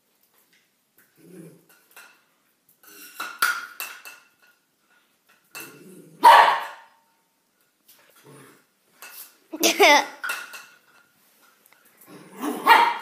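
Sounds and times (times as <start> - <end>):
small dog barking: 6.2 - 6.9, 12.4 - 13.0.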